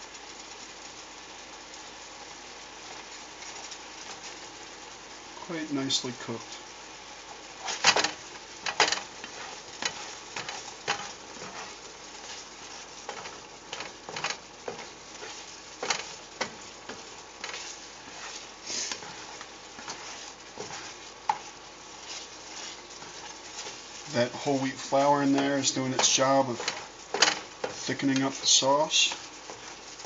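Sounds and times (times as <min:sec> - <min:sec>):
sauce sizzling: 0:00.0 - 0:30.0
spatula scraping skillet: 0:07.2 - 0:30.0.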